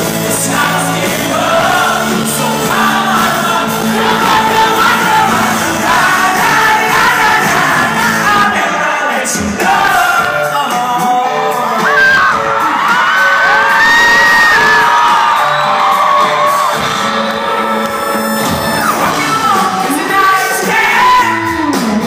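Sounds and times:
audience yelling and whooping: 0.0s - 10.4s, 11.4s - 21.5s
man singing: 0.0s - 13.8s, 18.6s - 22.0s
pop-rock band playing: 0.0s - 22.0s.

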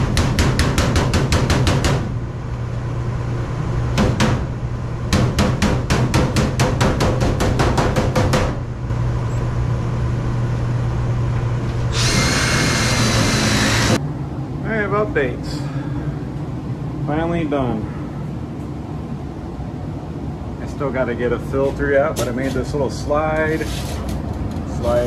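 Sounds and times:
hammer tapping on sheet metal: 0.0s - 2.1s, 5.1s - 8.6s
steady low hum: 0.0s - 25.0s
cordless drill running: 11.9s - 14.0s.

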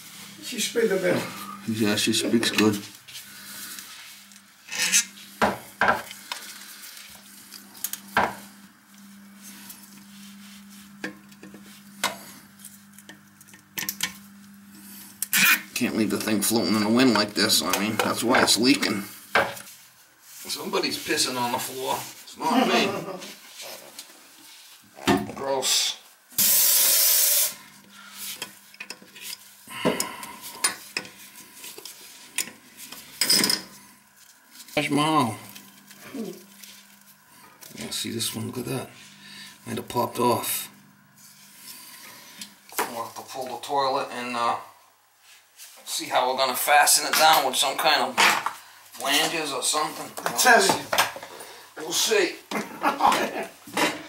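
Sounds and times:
loud hiss: 26.4s - 28.2s.

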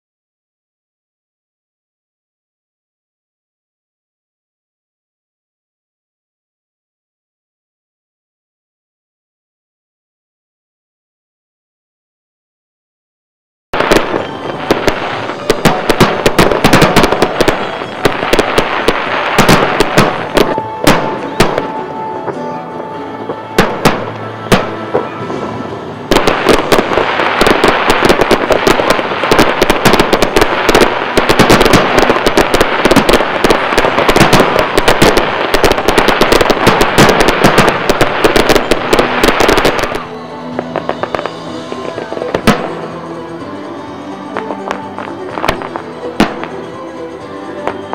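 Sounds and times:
fireworks bangs and crackling: 13.8s - 47.9s.

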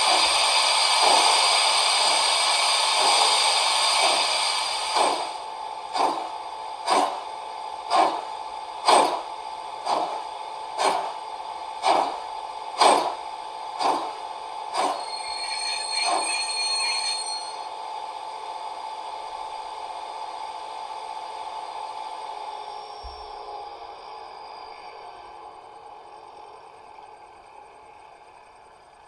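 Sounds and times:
model steam locomotive chuffs: 0.0s - 18.5s
steady hum: 0.0s - 29.0s
high squeal: 14.8s - 17.8s.

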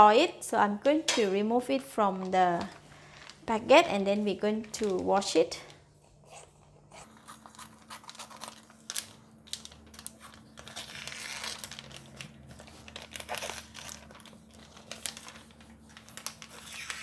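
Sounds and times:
plastic crinkling and rustling: 2.1s - 5.4s, 7.3s - 17.0s.

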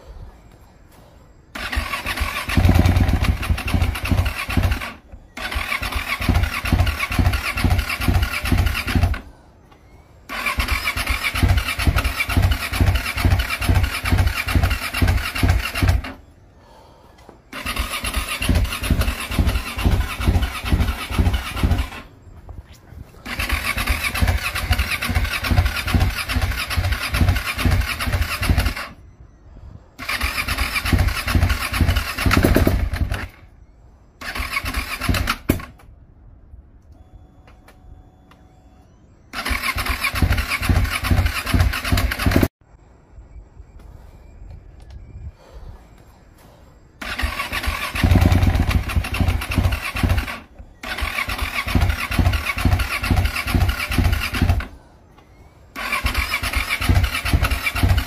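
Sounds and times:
motorcycle engine cranking: 1.6s - 9.3s, 10.3s - 16.2s, 17.5s - 22.1s, 23.2s - 29.0s, 30.0s - 33.4s, 34.2s - 35.9s, 39.3s - 42.5s, 47.0s - 54.7s, 55.8s - 58.0s.

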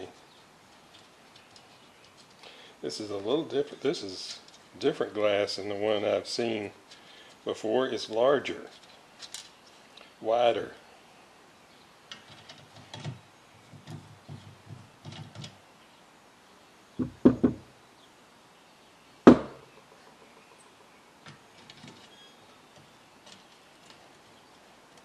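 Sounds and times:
sharp knocks on metal plate: 17.0s - 17.6s, 19.3s - 19.6s.

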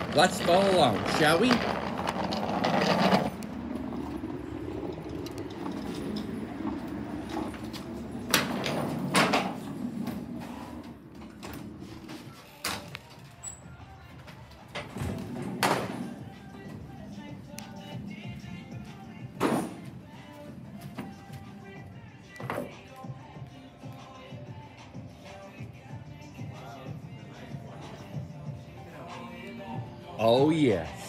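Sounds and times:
low rumble: 0.0s - 11.0s
glass doors clunking shut: 5.5s - 11.7s, 14.7s - 16.2s.

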